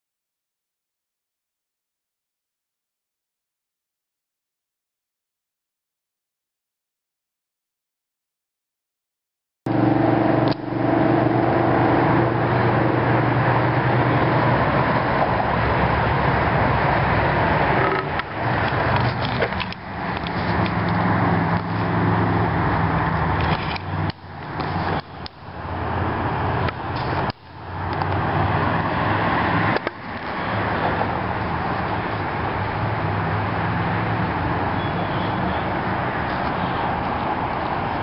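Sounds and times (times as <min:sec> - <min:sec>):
road traffic hum: 0:09.7 - 0:38.0.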